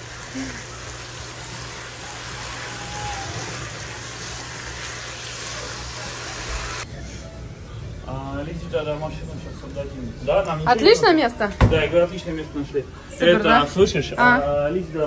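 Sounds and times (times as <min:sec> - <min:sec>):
food sizzling in a frying pan: 0:00.0 - 0:06.9.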